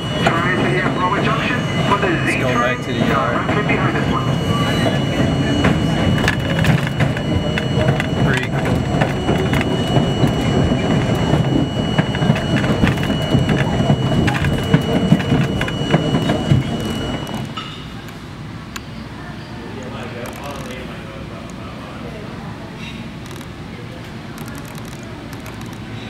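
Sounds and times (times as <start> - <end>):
thin high tone: 0.0 - 18.0
train wheels rumbling on rail: 0.0 - 18.6.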